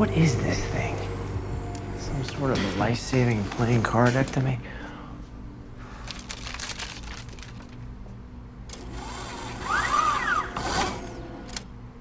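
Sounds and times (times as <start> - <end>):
robotic arm whirring: 8.7 - 11.7.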